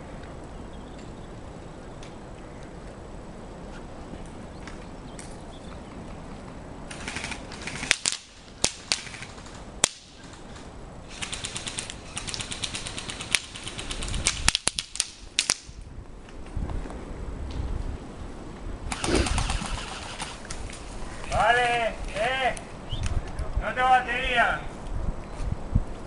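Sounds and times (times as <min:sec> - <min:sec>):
airsoft gun bursts: 0:06.9 - 0:10.4, 0:11.1 - 0:15.6, 0:18.9 - 0:20.6
airsoft gun single cracks: 0:07.0 - 0:10.2.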